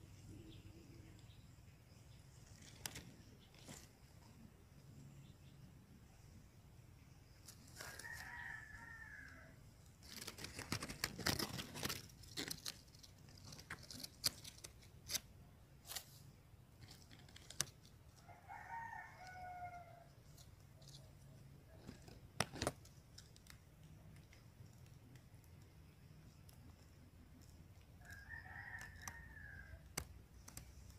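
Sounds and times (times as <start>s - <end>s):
rooster crowing: 7.8s - 9.6s, 18.3s - 20.1s, 28.0s - 29.8s
dry leaves rustling: 10.0s - 15.2s.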